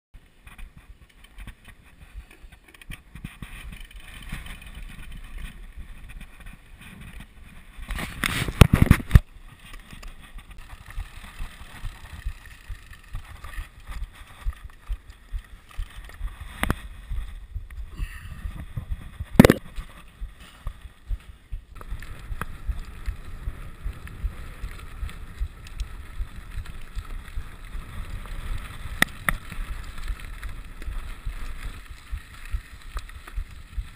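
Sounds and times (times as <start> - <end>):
bike rattling over bumps: 0.2 - 33.9
bike tyres rumbling on gravel: 0.2 - 33.9
wind on microphone: 16.2 - 33.9.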